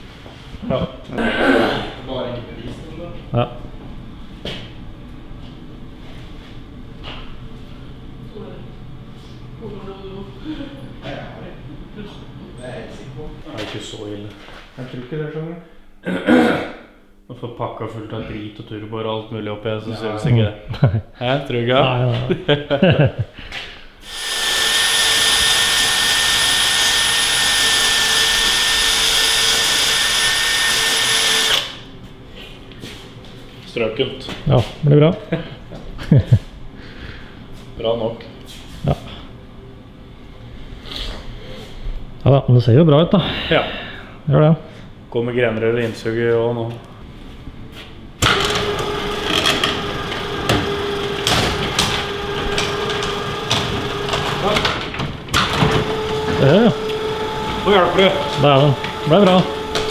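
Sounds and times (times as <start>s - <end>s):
cordless drill whining: 24.0s - 31.8s, 48.2s - 54.7s, 55.3s - 59.9s
garage door motor humming: 24.0s - 32.0s, 48.1s - 59.9s
garage door rattling and knocking: 48.6s - 56.4s.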